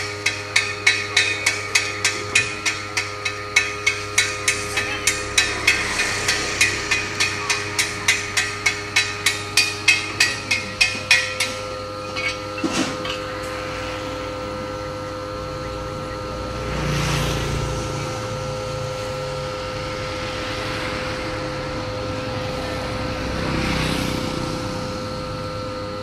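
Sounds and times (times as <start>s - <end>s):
low rushing: 0.0s - 12.6s.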